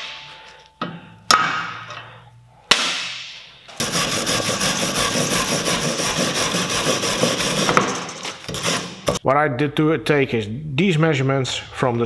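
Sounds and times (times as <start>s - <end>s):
wire brush scrubbing metal: 3.8s - 7.7s.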